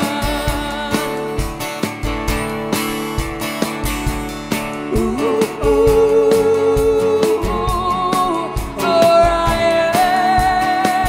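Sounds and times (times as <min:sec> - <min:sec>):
drum kit beat: 0:00.0 - 0:11.0
strummed acoustic guitars: 0:00.0 - 0:11.0
person singing long notes: 0:04.9 - 0:11.0.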